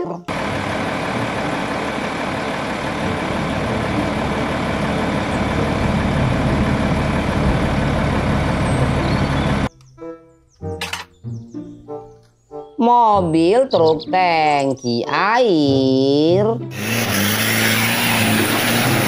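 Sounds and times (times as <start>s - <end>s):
diesel truck engine rumbling: 0.0s - 9.7s, 16.6s - 19.0s.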